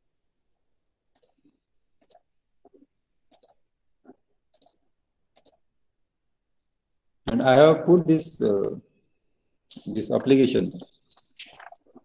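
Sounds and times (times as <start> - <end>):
faint computer clicks: 3.3 - 3.6.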